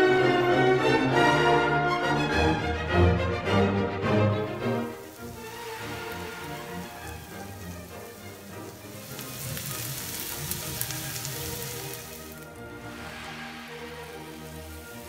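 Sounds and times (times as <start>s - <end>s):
background music: 0.0s - 15.0s
crackling oil spits: 4.5s - 15.0s
onions sizzling in hot oil: 4.5s - 15.0s.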